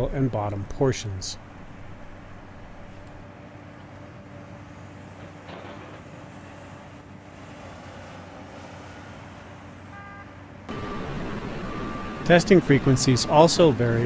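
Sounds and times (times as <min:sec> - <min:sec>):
road traffic: 0:00.0 - 0:14.0
construction equipment idling: 0:10.7 - 0:14.0.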